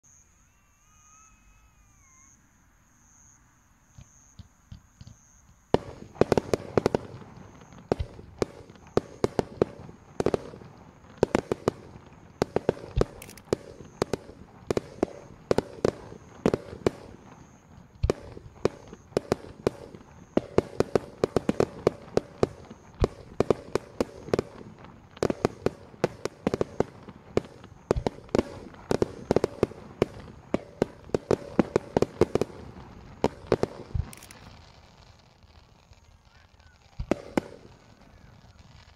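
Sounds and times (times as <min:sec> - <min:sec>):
fireworks crackling: 0:00.0 - 0:03.1, 0:03.8 - 0:38.9
faint firework pops: 0:04.0 - 0:38.9
firework shell bursts: 0:12.4 - 0:17.2, 0:33.2 - 0:34.7.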